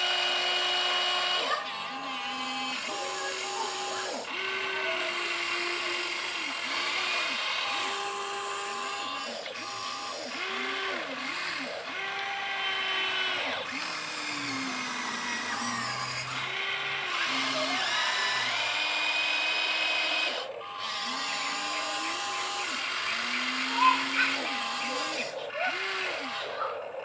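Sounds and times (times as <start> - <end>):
electric motors whining: 0.0 - 27.0.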